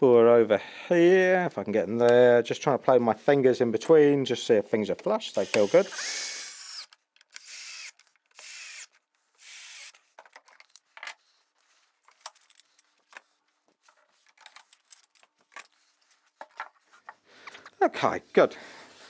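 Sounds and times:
cordless drill whining: 5.4 - 10.0.

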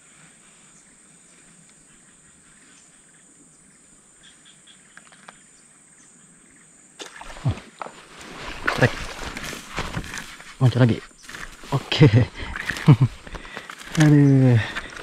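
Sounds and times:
faint ticks: 1.5 - 1.9.

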